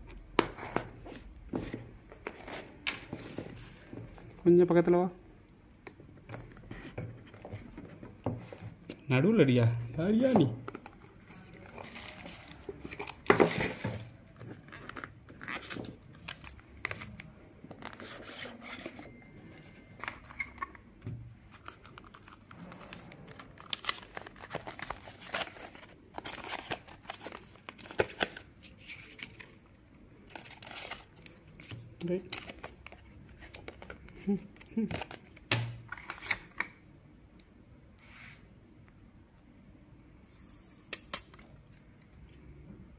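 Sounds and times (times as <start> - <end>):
paper and card rustling: 10.1 - 19.2, 21.4 - 36.6.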